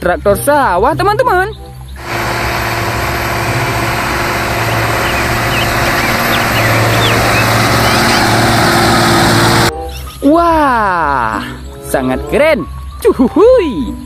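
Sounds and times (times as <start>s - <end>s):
tractor diesel engine under load: 2.0s - 9.7s.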